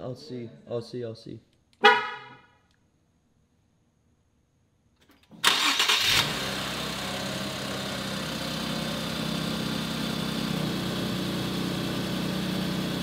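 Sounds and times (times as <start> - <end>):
car engine starting and idling: 5.1 - 13.0.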